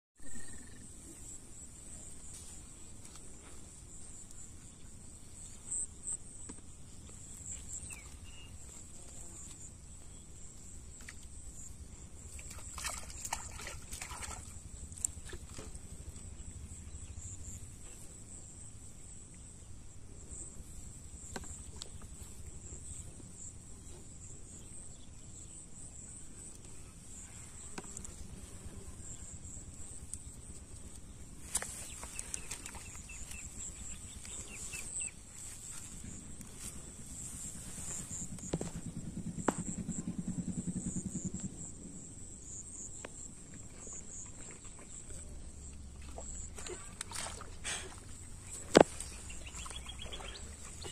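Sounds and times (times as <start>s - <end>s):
high-pitched insect chirr: 0.2s - 0.9s
low rumble of wind: 28.2s - 50.9s
rustling noise: 31.4s - 39.0s.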